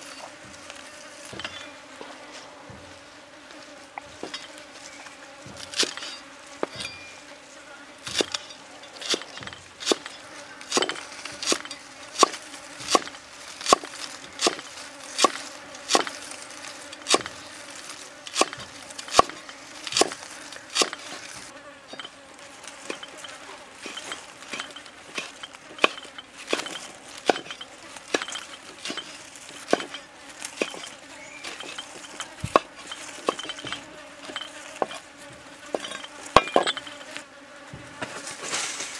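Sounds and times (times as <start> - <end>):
steady buzzing hum: 0.0 - 38.9
cleaver chopping on wooden block: 5.4 - 7.1, 8.0 - 8.4, 9.0 - 10.1, 10.7 - 16.2, 16.8 - 17.4, 18.3 - 22.0, 22.8 - 35.0.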